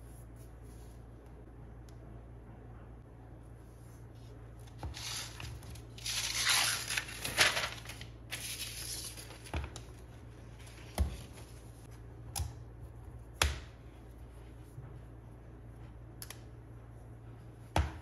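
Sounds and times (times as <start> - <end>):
packaging rustling and crinkling: 5.0 - 9.5.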